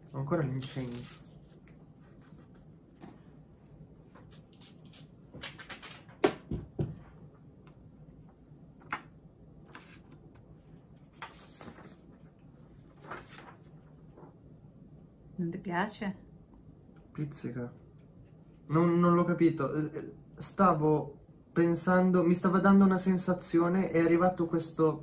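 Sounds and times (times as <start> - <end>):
paper rustles and clicks: 5.4 - 6.4.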